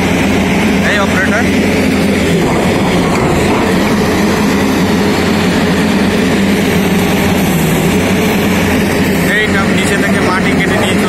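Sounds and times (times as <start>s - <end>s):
diesel engine droning: 0.0s - 11.0s.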